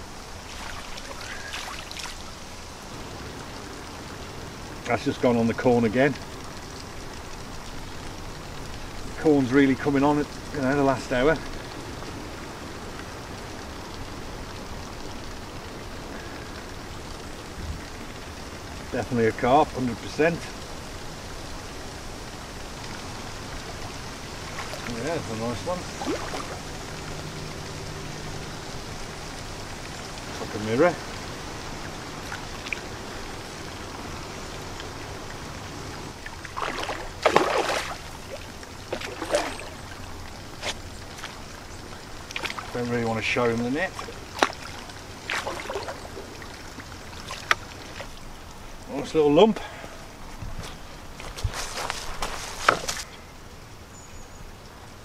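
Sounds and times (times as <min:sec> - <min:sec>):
outdoor background hiss: 0:00.0 - 0:55.0
fish splashing at water surface: 0:00.3 - 0:02.5, 0:23.7 - 0:27.1, 0:36.2 - 0:41.6, 0:43.7 - 0:48.2.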